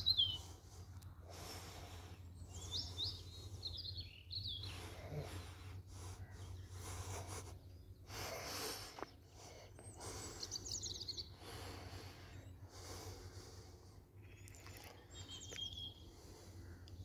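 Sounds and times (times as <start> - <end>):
bird chirping trill: 0.0 - 0.6, 2.2 - 5.0, 9.8 - 11.4, 14.2 - 16.1
outdoor background noise: 0.0 - 17.0.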